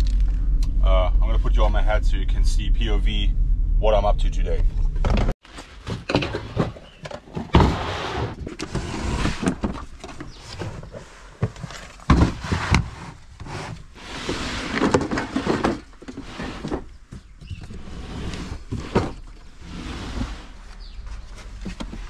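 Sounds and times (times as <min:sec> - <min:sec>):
plastic crates scraping: 0:05.0 - 0:22.0.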